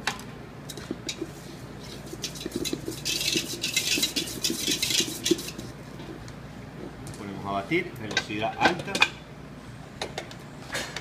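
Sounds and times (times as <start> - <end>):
scratchy rubbing against metal bowl: 1.2 - 5.8.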